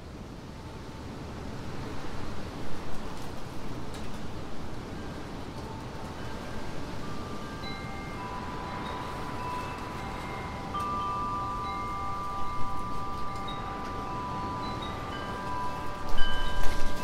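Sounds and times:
wind blowing: 1.8s - 17.0s
wind chimes ringing: 4.9s - 17.0s.

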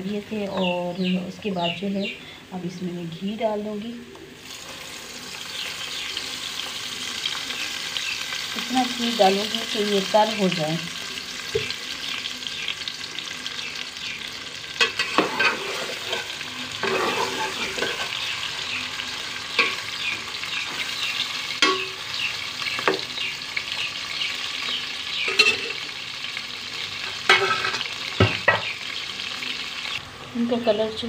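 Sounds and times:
vegetables sizzling in a pot: 0.0s - 31.0s
spoon scraping a pot: 14.8s - 18.2s, 25.3s - 25.8s.

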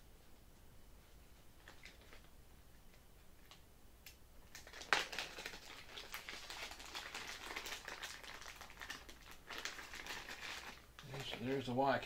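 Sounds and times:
plastic bag crinkling: 1.6s - 2.3s, 4.5s - 11.7s.

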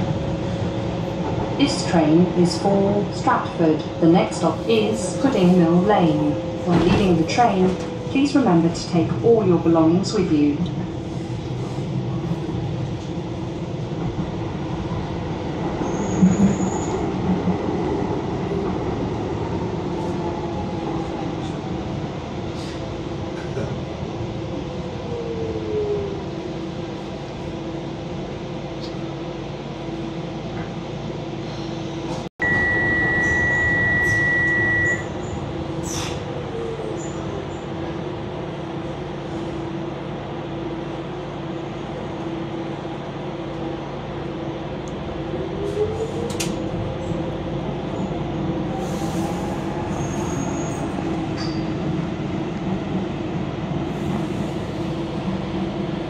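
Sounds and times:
train hum and rail noise: 0.0s - 56.0s
loud high beep: 32.4s - 35.1s.

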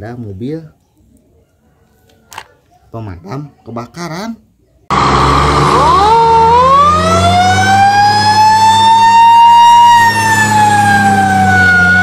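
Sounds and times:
fire engine siren wailing: 4.9s - 12.0s.

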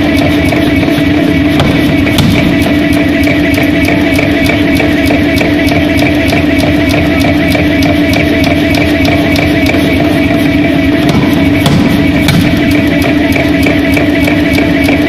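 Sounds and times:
forging hammer striking steel: 0.0s - 15.0s
steady machine hum: 0.0s - 15.0s.

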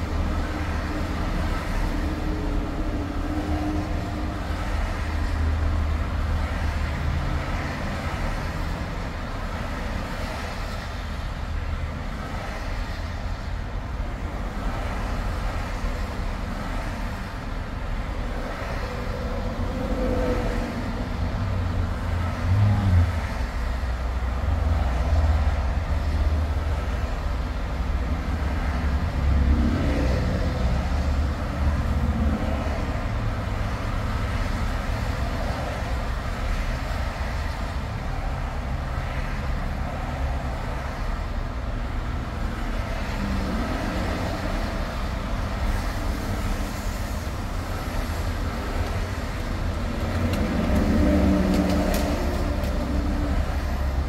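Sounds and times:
highway road noise: 0.0s - 54.0s.

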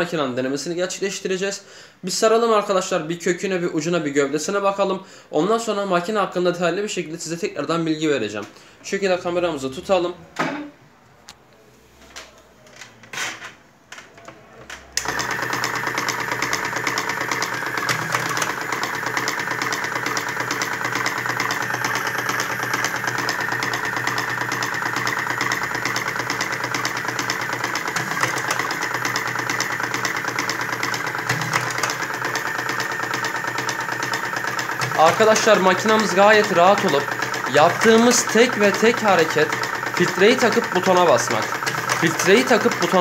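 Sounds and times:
cigarette-filling machine motor running: 15.0s - 43.0s.

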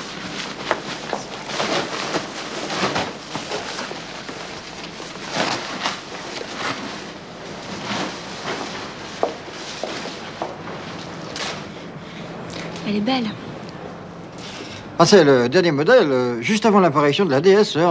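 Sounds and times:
fabric car cover rustling: 0.0s - 11.7s.

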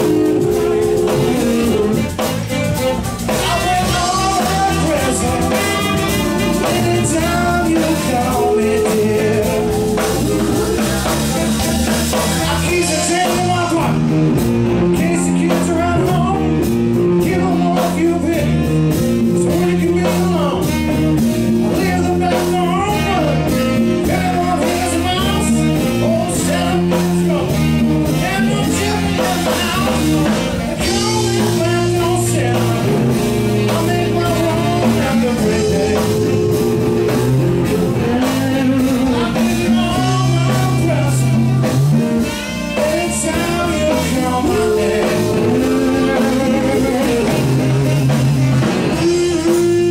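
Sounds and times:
person singing: 0.0s - 13.7s, 28.2s - 41.7s, 42.7s - 49.9s
blues-rock band playing: 0.0s - 49.9s.

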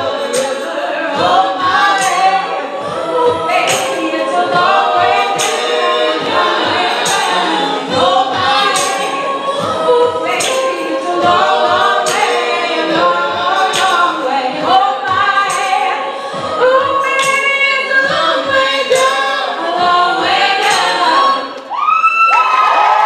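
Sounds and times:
a cappella group singing: 0.0s - 21.7s.

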